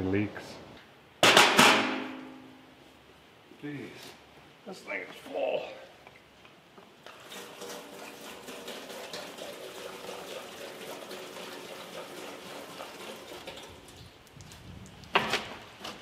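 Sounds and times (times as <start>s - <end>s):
gasoline pouring through funnel: 7.0s - 15.8s.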